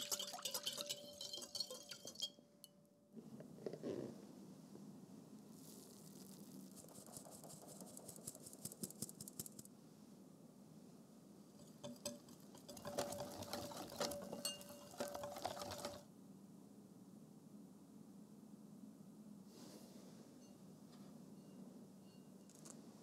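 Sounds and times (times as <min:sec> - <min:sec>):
whisk clicking against glass bowl: 0:00.0 - 0:02.3, 0:11.6 - 0:16.0
flour sieve ticking: 0:00.0 - 0:02.8, 0:11.6 - 0:16.0.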